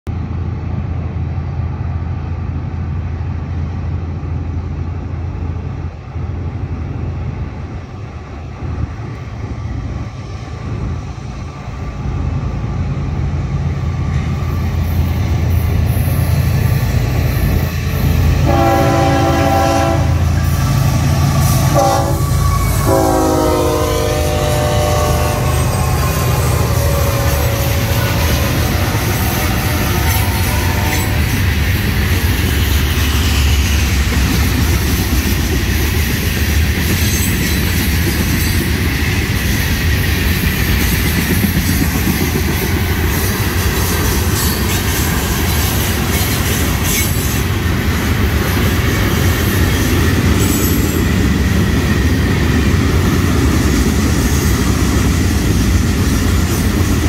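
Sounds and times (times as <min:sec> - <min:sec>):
diesel locomotive engine rumble: 0:00.1 - 0:57.0
train air horn blasts: 0:18.4 - 0:20.5, 0:21.4 - 0:31.3.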